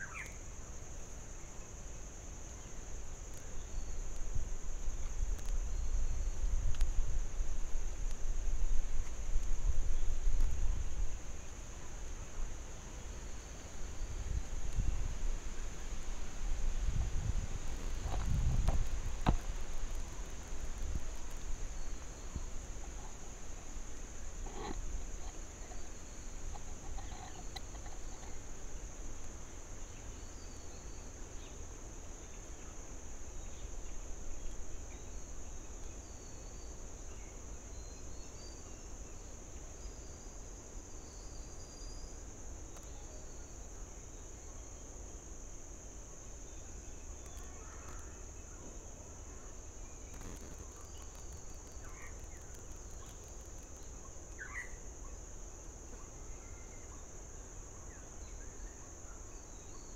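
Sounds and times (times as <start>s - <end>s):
faint bird calls: 0.0s - 0.4s, 47.2s - 53.2s.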